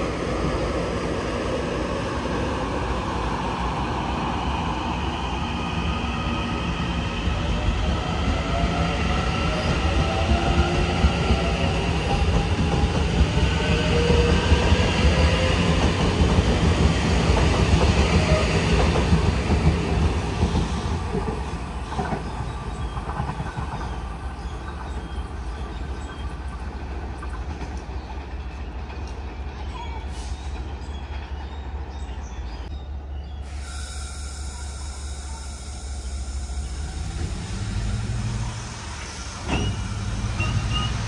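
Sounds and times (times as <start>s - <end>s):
train wheels rumbling: 0.0s - 41.0s
wheel squeal: 39.4s - 41.0s.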